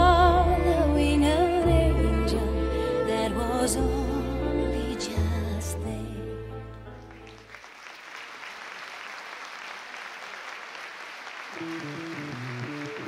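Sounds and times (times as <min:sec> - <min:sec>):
held music chord: 0:00.0 - 0:07.1
music playing: 0:00.0 - 0:07.5, 0:11.6 - 0:13.0
audience applauding: 0:07.0 - 0:13.0.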